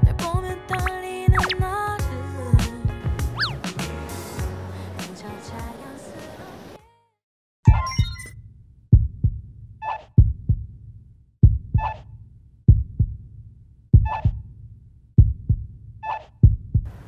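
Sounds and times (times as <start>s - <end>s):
heartbeat double thump: 0.0s - 1.8s, 2.6s - 3.6s, 8.9s - 9.4s, 10.2s - 10.7s, 11.4s - 12.1s, 12.7s - 13.2s, 14.0s - 14.5s, 15.2s - 15.7s, 16.4s - 16.9s.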